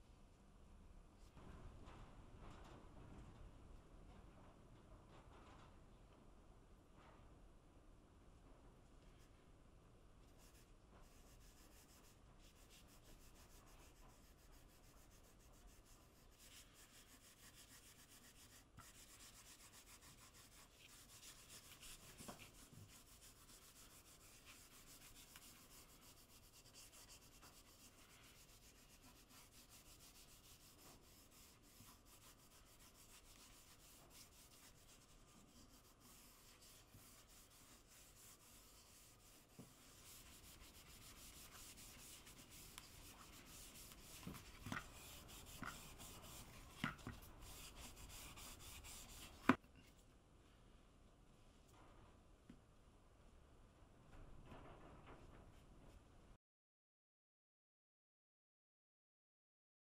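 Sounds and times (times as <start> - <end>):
cloth rubbing on wood: 10.4 - 49.6.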